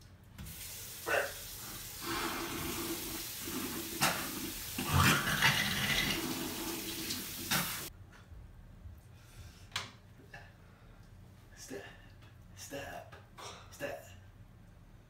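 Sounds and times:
tap running water into basin: 0:00.4 - 0:07.9
person spitting: 0:03.5 - 0:06.4.

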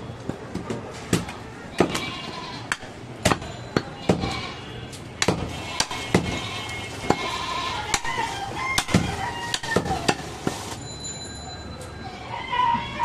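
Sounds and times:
knife chopping meat on wood block: 0:05.2 - 0:06.4, 0:07.9 - 0:10.2.

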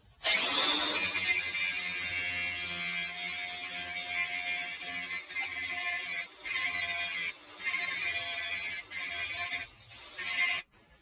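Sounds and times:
angle grinder grinding steel: 0:00.2 - 0:05.6.

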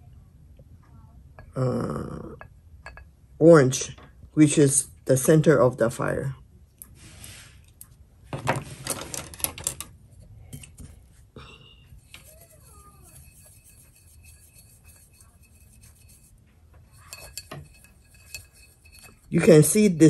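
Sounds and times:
paintbrush tapping and scraping dish: 0:02.2 - 0:03.2, 0:11.9 - 0:20.0
paintbrush rubbing with small clicks: 0:11.9 - 0:19.4.

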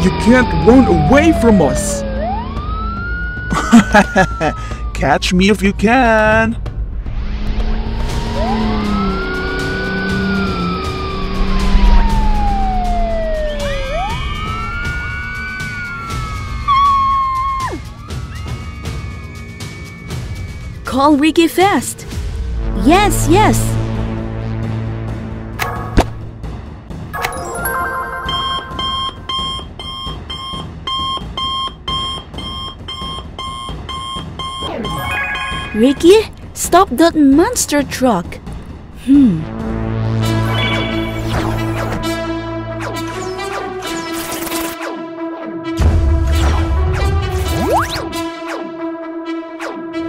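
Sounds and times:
police siren wailing: 0:00.0 - 0:06.0, 0:07.6 - 0:20.8, 0:27.3 - 0:30.3
background music: 0:00.0 - 0:50.0
two-tone electronic beep: 0:27.2 - 0:36.2, 0:40.4 - 0:41.8.

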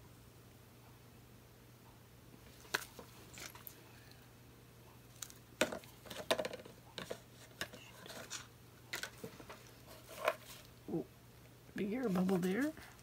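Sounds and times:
plastic tools clicking and tapping: 0:05.2 - 0:09.6.

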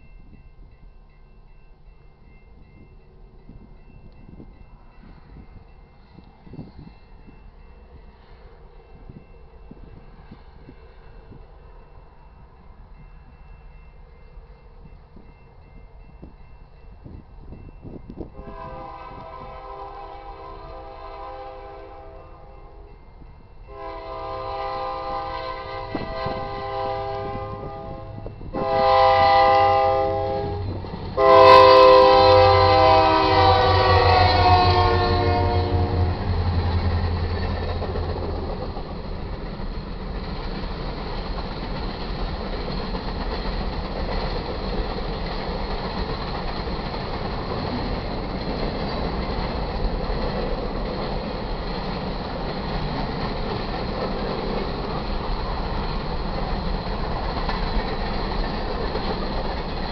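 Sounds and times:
train air horn blasts: 0:18.3 - 0:22.9, 0:23.7 - 0:36.3
diesel locomotive rumble: 0:23.2 - 0:59.9.

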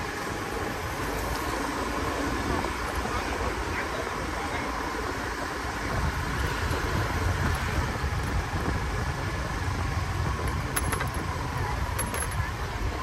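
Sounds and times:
faint motorbike engine hum: 0:00.0 - 0:13.0
road and wind rumble: 0:00.0 - 0:13.0.

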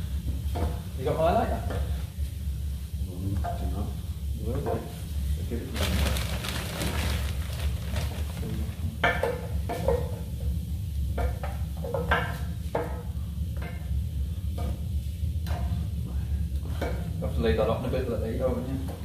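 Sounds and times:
steady low hum: 0:00.0 - 0:19.0
pots and mugs clinking: 0:05.8 - 0:10.2.

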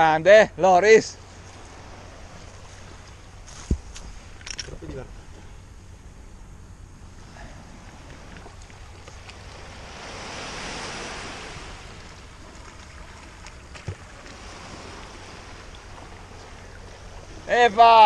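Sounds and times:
small waves on pebble shore: 0:07.2 - 0:18.0.

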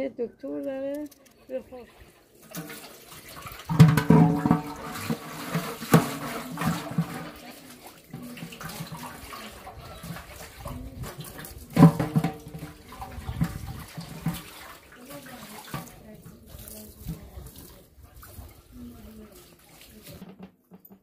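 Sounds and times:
water pouring into colander: 0:01.8 - 0:20.4
metal pot knocking on colander: 0:03.7 - 0:07.3, 0:11.8 - 0:14.5.

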